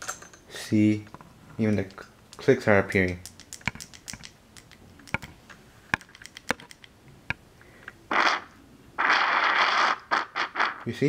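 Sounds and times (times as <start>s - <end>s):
sharp light clicks and taps: 1.8s - 7.4s.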